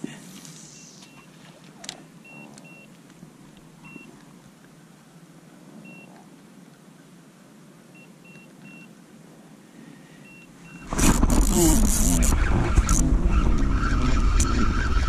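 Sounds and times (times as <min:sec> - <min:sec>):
steady low rumble: 0:10.8 - 0:15.0.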